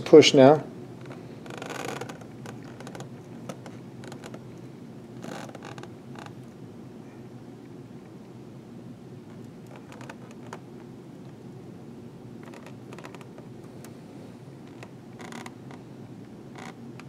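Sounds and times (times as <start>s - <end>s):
steady low hum: 0.0s - 17.0s
balloon creaks and clicks: 1.0s - 4.5s, 5.2s - 6.5s, 9.3s - 10.7s, 12.4s - 13.8s, 14.6s - 15.8s, 16.6s - 17.0s.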